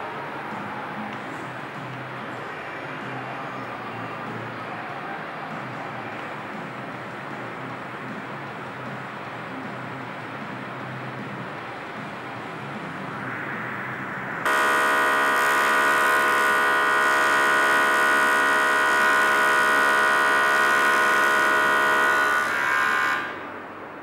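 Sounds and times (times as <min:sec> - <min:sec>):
electric welding arc buzz: 0:14.4 - 0:23.4.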